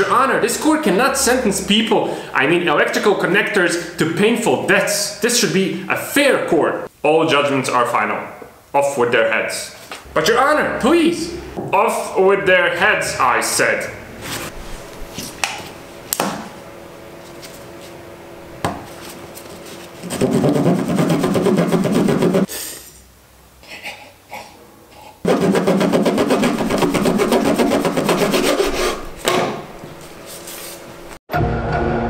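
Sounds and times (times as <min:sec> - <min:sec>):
bread knife sawing through wiring: 0:20.0 - 0:22.5, 0:25.3 - 0:29.2.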